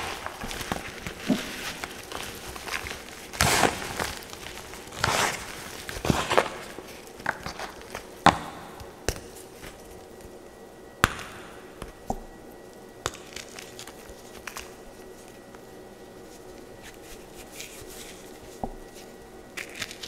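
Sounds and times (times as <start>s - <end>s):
chalk blocks snapping and crunching: 0.0s - 9.8s, 18.9s - 20.0s
soft chalk crumbling: 0.0s - 10.4s, 12.7s - 20.0s.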